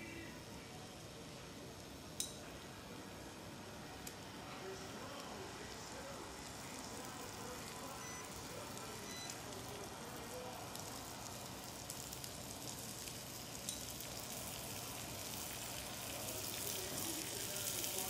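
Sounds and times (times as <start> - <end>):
fish frying in butter: 3.8 - 18.0.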